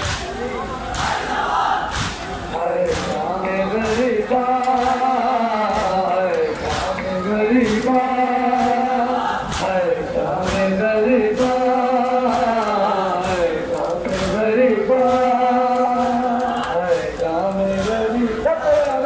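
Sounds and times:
man chanting a lament: 2.5 - 19.0
chest-beating slaps: 2.9 - 3.2, 6.6 - 8.0.

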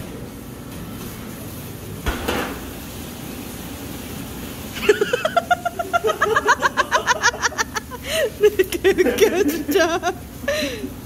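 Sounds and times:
person laughing hard: 4.8 - 10.9.

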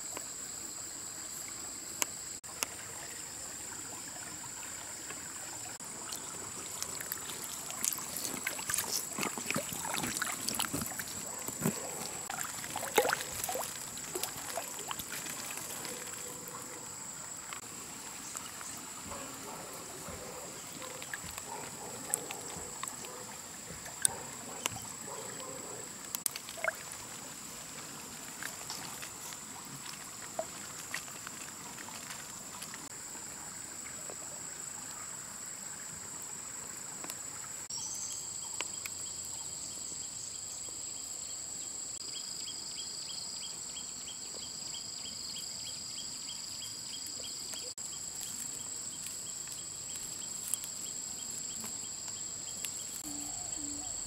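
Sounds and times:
insects droning: 0.0 - 54.0
water splashes: 1.4 - 37.7.

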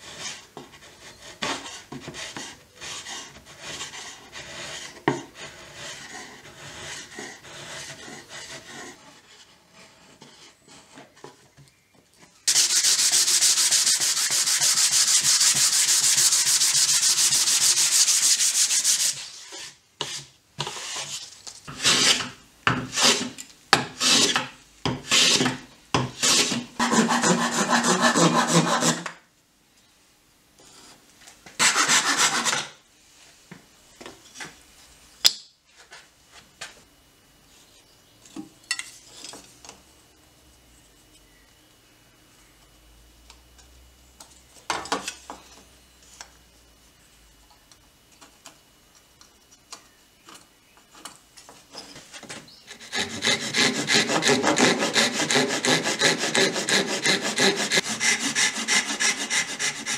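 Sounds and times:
hand sanding wood: 12.5 - 22.2, 25.0 - 25.6, 26.2 - 29.0, 31.6 - 32.5, 52.7 - 59.9
chisel scraping wood: 52.7 - 59.9.

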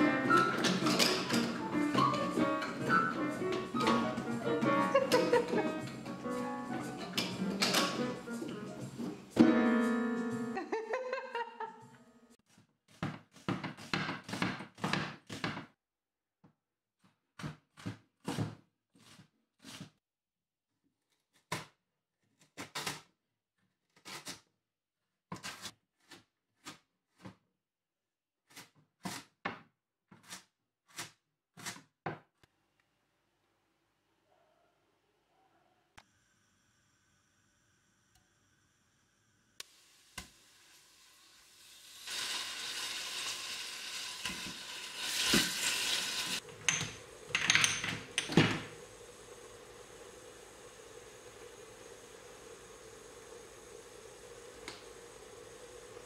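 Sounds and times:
knife chopping carrot on board: 12.5 - 15.7
ground beef sizzling in oil: 39.6 - 47.3
spice jars clinking and rattling: 46.6 - 48.4.

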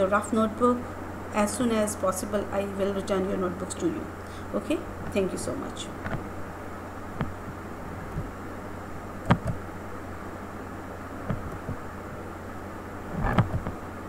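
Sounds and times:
low hum: 0.0 - 14.0
microphone hiss: 0.0 - 14.0
computer mouse clicks: 9.2 - 9.6.

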